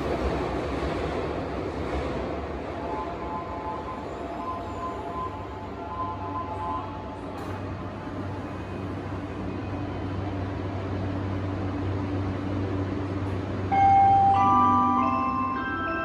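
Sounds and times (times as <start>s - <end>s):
train mechanical hum: 0.0s - 16.0s
chime tone: 13.8s - 16.0s.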